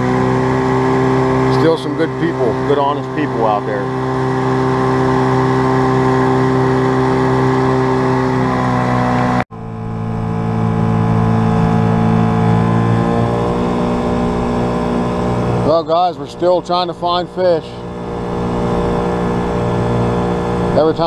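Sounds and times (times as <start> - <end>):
outboard motor running: 0.0 - 21.0.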